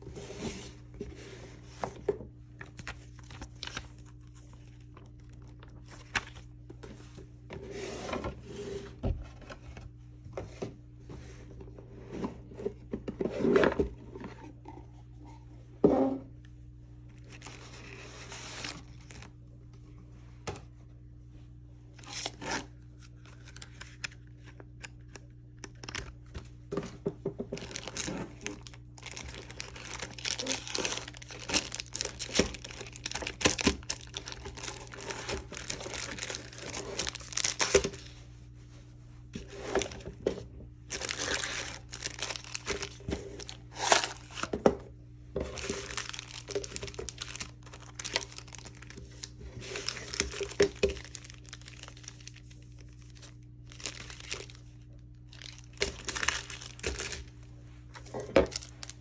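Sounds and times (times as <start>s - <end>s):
foil wrappers crinkling: 2.6s - 6.6s, 27.4s - 38.1s, 40.9s - 44.6s, 45.4s - 59.0s.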